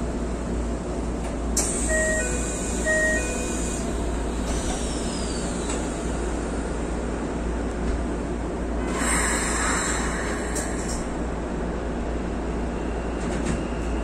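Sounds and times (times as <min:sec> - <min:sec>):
train humming: 0:00.0 - 0:14.0
air hissing: 0:08.9 - 0:11.1.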